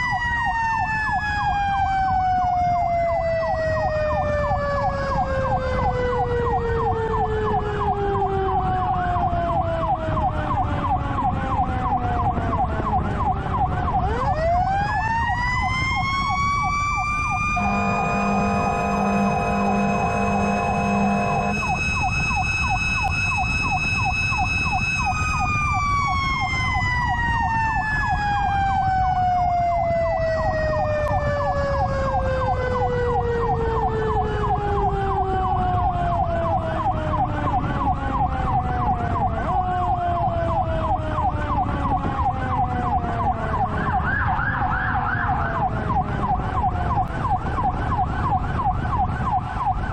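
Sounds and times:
electronic siren fast yelp: 0:00.0 - 0:49.9
mechanical siren wailing: 0:00.0 - 0:49.9
fire truck horn: 0:17.3 - 0:23.7.

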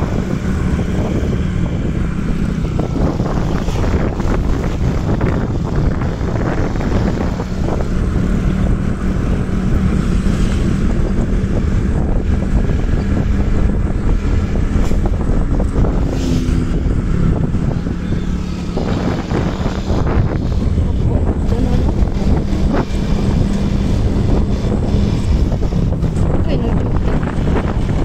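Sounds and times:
low engine hum: 0:00.0 - 0:28.0
wind buffeting microphone: 0:00.0 - 0:28.0.

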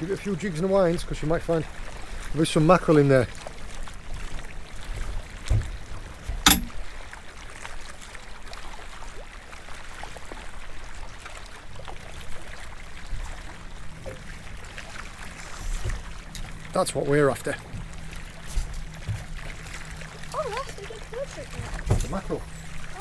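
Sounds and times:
water lapping around boat hull: 0:00.0 - 0:23.0
sharp knock: 0:06.5 - 0:06.8.

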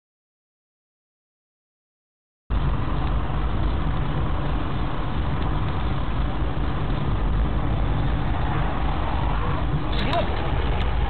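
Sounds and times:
vehicle engine and road noise: 0:02.5 - 0:11.0.

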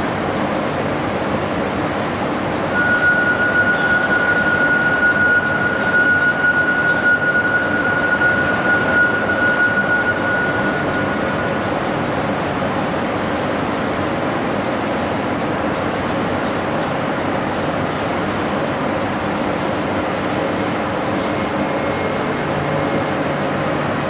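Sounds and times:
train low rumble: 0:00.0 - 0:24.0
train brakes squealing: 0:02.7 - 0:13.4, 0:20.4 - 0:24.0.

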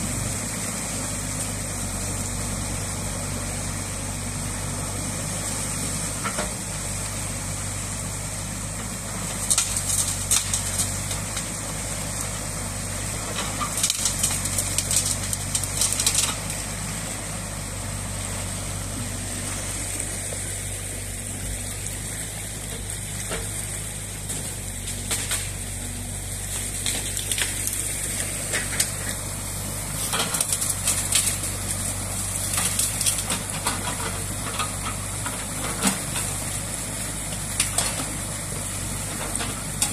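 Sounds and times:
excavator diesel engine idling: 0:00.0 - 0:39.9
crackling noisy bursts: 0:06.3 - 0:39.9.

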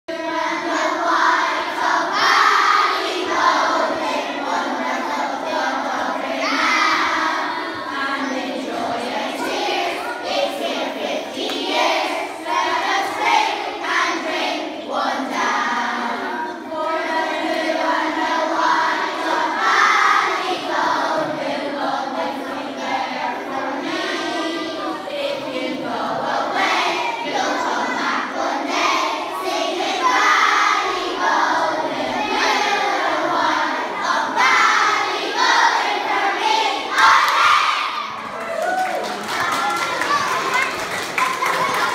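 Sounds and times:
children singing together: 0:00.1 - 0:38.2, 0:39.3 - 0:41.9.

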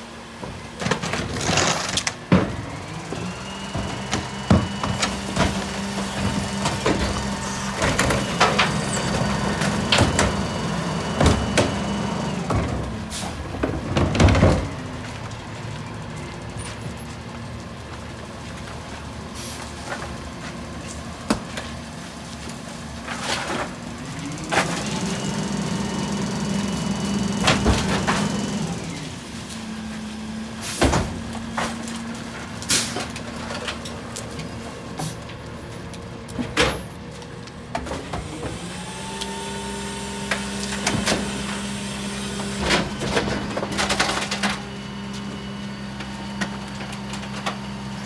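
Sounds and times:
garbage truck engine: 0:00.0 - 0:48.0
hydraulic whine: 0:01.6 - 0:13.3.

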